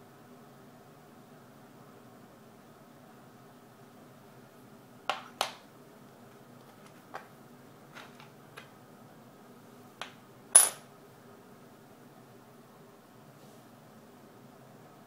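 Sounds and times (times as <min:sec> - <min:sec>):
coin clink with high ring: 0:10.6 - 0:10.8
coins clicking on wooden table: 0:10.6 - 0:10.8.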